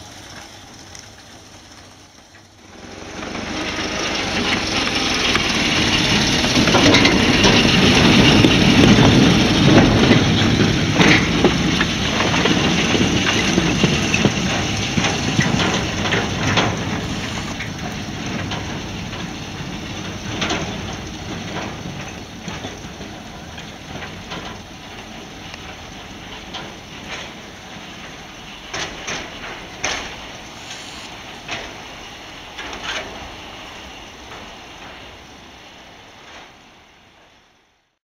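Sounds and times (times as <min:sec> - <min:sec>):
locomotive rolling on track: 0:00.0 - 0:38.0
running gear knocks and clanks: 0:06.7 - 0:30.3.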